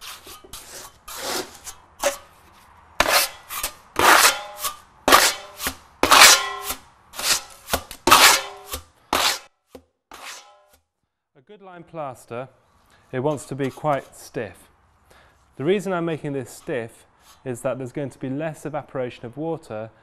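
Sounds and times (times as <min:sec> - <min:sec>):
trowel scraping plaster: 0:00.0 - 0:09.5, 0:10.1 - 0:10.8, 0:13.3 - 0:14.4.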